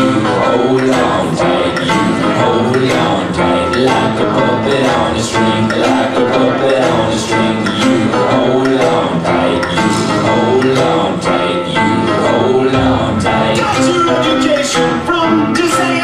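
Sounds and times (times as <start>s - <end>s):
music with steady beat over loudspeaker: 0.0s - 16.0s.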